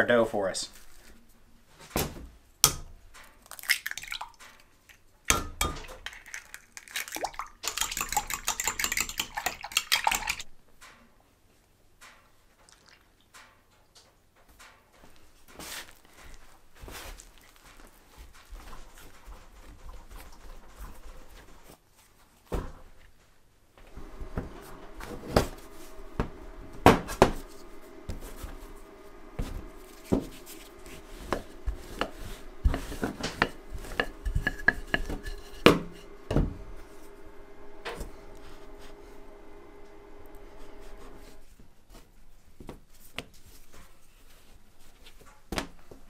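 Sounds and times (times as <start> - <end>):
dough rustling and squishing: 15.1 - 23.2, 24.0 - 39.4.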